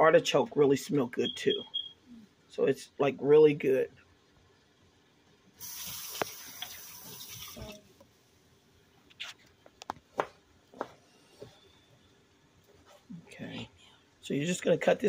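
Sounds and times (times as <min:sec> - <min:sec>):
steady hiss: 0:05.6 - 0:08.6.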